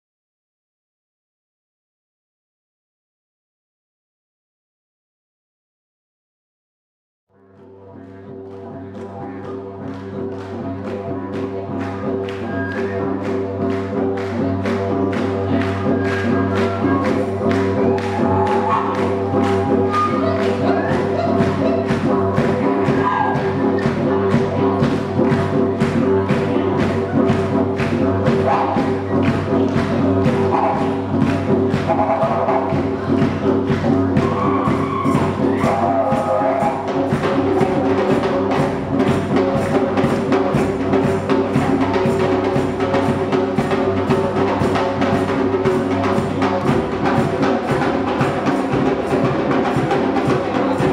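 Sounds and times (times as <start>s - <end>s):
didgeridoo drone: 7.3s - 50.9s
fast hand drumming: 11.4s - 50.9s.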